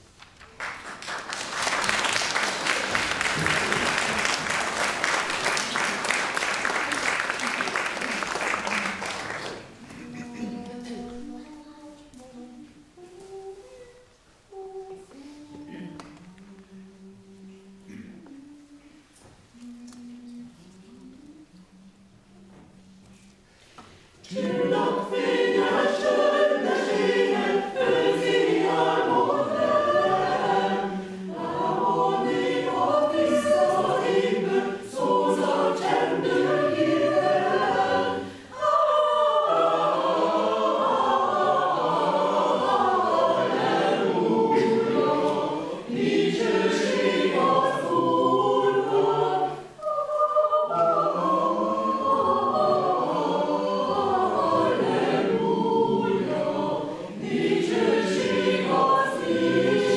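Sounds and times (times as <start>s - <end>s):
mixed choir singing: 1.0s - 23.4s, 24.1s - 59.9s
choir breaths: 13.3s - 16.0s, 20.4s - 59.9s.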